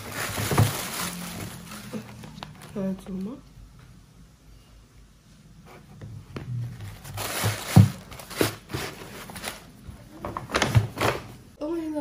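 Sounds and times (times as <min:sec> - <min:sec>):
packaging crinkling: 0:00.0 - 0:02.8, 0:07.0 - 0:11.0.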